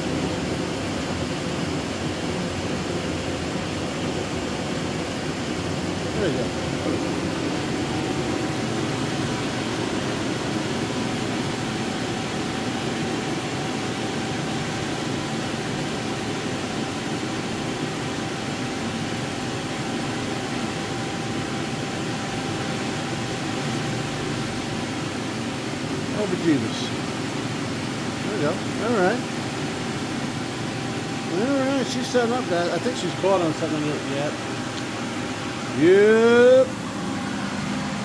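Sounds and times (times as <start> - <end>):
electric blower running: 0.0 - 38.0.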